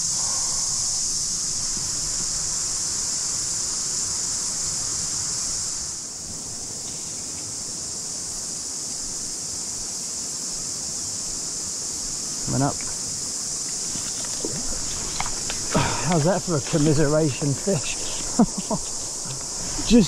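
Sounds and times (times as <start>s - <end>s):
cicada chorus drone: 0.0s - 20.0s
flowing river water: 12.6s - 20.0s.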